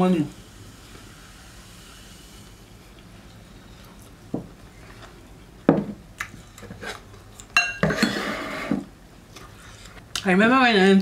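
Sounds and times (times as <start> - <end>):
dishes knocking on a table: 4.3 - 4.5, 5.7 - 6.0
glass clink: 7.6 - 8.2.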